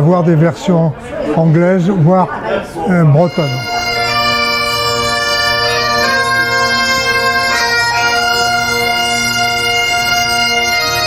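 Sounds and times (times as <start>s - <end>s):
bagpipe band playing: 2.9s - 11.0s.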